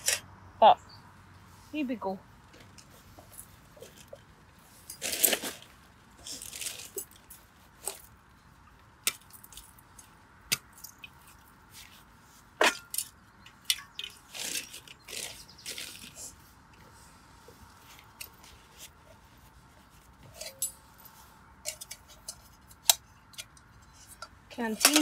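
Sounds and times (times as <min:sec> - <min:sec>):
canvas cover rustling: 0:02.5 - 0:08.2
metal canteen and cup clinking: 0:12.6 - 0:16.2, 0:20.2 - 0:20.8, 0:21.6 - 0:25.0.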